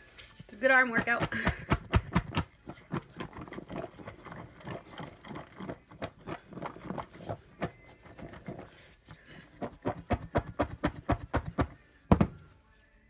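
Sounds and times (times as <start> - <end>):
food rattling in shaken bowl: 1.5 - 8.6.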